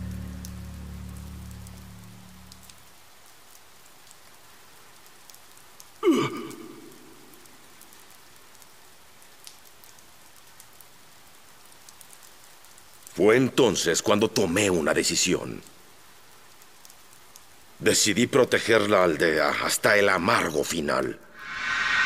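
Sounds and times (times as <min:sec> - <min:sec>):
water drips: 0:00.0 - 0:13.2
steady rain hiss: 0:00.0 - 0:22.0
sound dropping steeply in pitch: 0:21.4 - 0:22.0.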